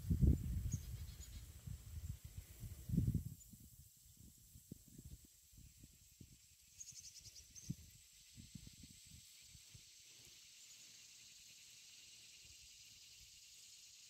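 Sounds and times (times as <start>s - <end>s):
insects buzzing: 0.0s - 14.0s
pulsing insect trill: 5.3s - 14.0s.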